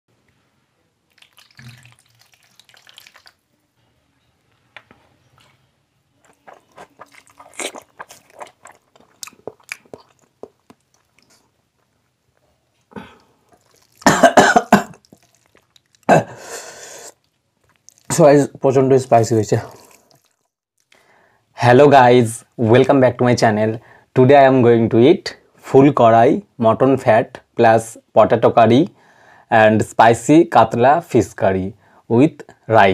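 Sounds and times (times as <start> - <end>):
wet chewing and smacking: 1.1 - 3.4, 6.2 - 12.2, 13.2 - 14.2, 14.9 - 16.1, 17.1 - 18.3, 19.6 - 21.0
man coughing: 12.9 - 13.2, 14.0 - 15.0, 16.1 - 16.4.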